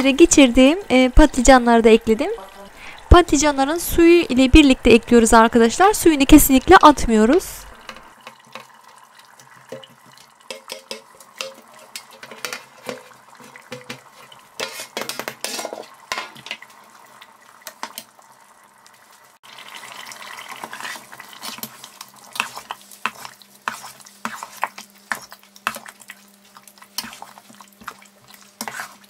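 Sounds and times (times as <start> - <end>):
spoon scraping metal pot: 10.5 - 16.0, 20.5 - 25.8, 27.0 - 29.0.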